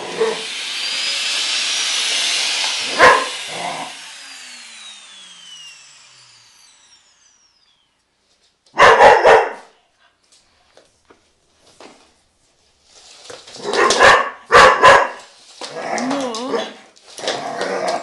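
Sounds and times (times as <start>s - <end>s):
vacuum cleaner running: 0.0s - 9.6s, 12.9s - 18.0s
dog barking: 3.0s - 3.4s, 8.8s - 9.8s, 13.7s - 15.2s.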